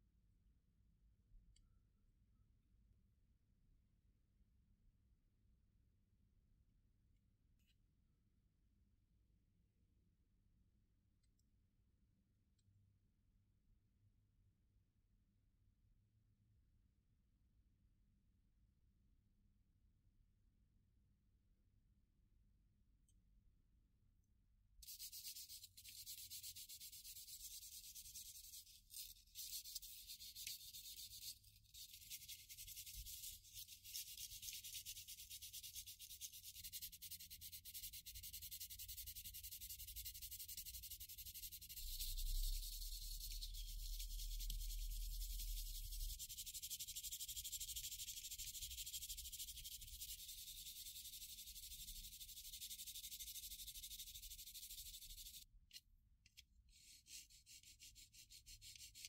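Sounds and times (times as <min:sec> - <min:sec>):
hand sanding plastic: 0:24.8 - 0:55.4.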